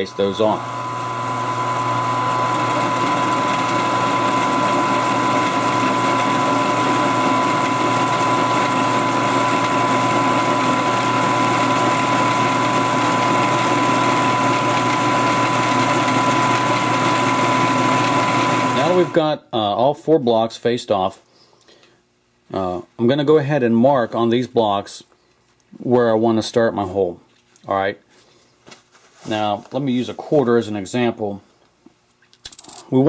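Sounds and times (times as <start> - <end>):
milling machine hum: 0.0 - 19.2.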